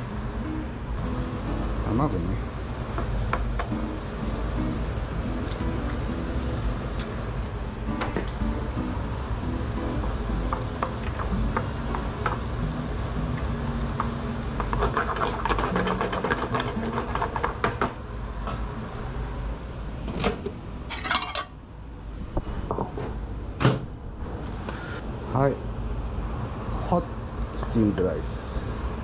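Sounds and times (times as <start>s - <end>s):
food sizzling in a frying pan: 1.0s - 18.5s, 25.6s - 29.0s
wooden spatula scraping a pan: 14.7s - 17.5s.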